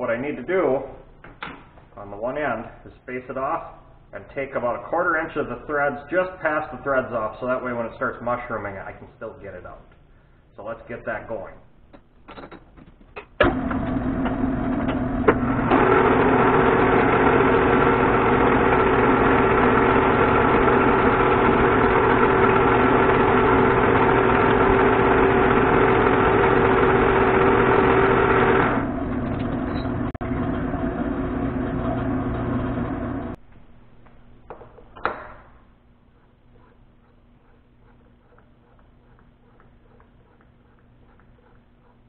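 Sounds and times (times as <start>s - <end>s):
metal lathe running: 13.5s - 33.4s
lathe tool cutting steel: 15.0s - 33.4s.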